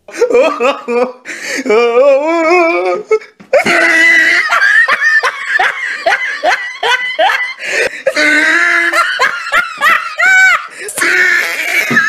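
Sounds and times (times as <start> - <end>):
person laughing hard: 0.1 - 12.0
long vocal cry: 1.6 - 4.8, 7.2 - 12.0.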